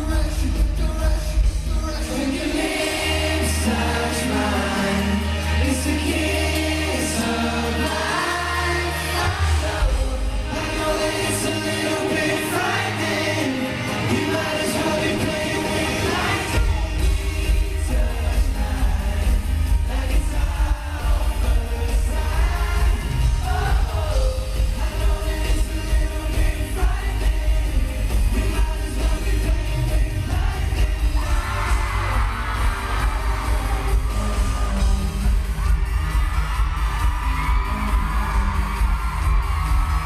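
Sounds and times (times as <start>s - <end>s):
live pop band with group singing: 0.0s - 40.0s
crowd screaming: 31.0s - 40.0s.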